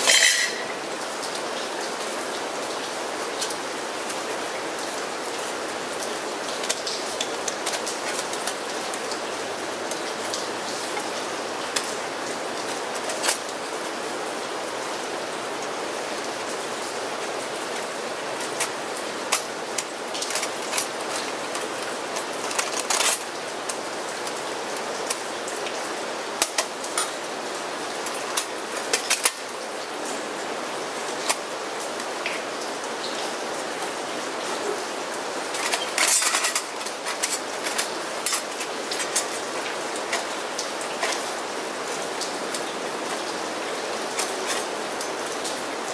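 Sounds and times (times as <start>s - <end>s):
metal panels clicking and scraping: 0.0s - 0.7s, 18.4s - 23.8s, 35.5s - 40.3s
rain hissing: 0.0s - 45.9s.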